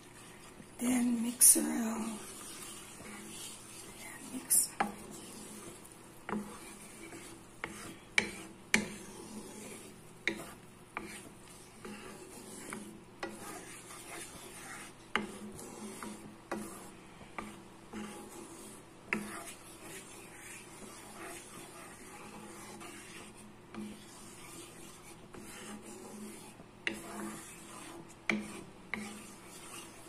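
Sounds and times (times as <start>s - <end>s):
spatula scraping and knocking pan: 0.0s - 30.0s
wooden spatula stirring thick sauce: 0.0s - 30.0s.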